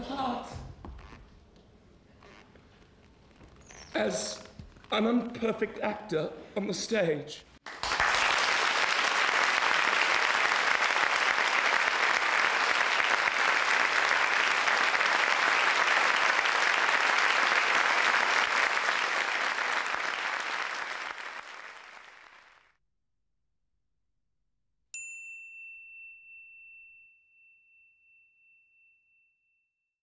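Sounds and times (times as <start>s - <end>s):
audience applauding: 7.6s - 22.7s.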